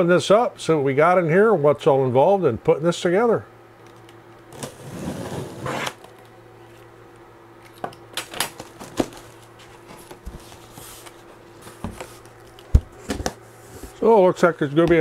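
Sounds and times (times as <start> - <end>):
packing tape being slit: 5.6 - 6.1
cardboard flaps crinkling: 8.3 - 14.0.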